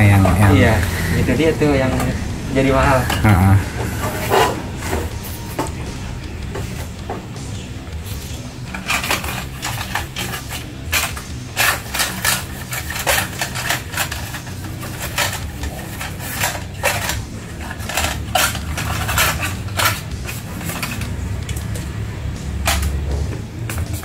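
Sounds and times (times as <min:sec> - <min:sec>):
plastic pieces clicking and knocking: 0:08.7 - 0:21.6, 0:22.6 - 0:23.0.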